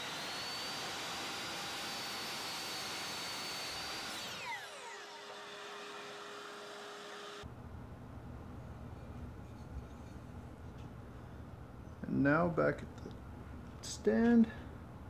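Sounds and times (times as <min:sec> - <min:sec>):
miter saw cutting wood: 0:00.0 - 0:07.4
saw blade spinning down: 0:00.0 - 0:07.4
faint steady hum: 0:07.4 - 0:15.0.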